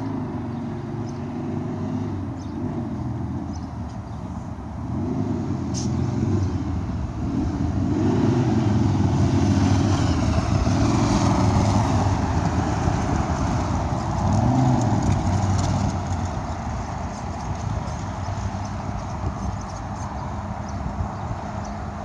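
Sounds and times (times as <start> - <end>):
pickup truck passing close: 0.0 - 22.0
vehicles passing: 0.0 - 22.0
tyre noise: 10.3 - 21.2.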